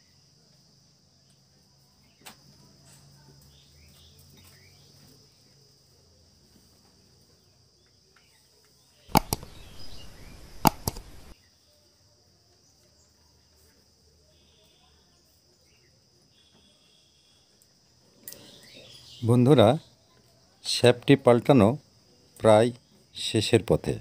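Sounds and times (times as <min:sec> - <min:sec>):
faint high-pitched hum: 0:09.1 - 0:13.0.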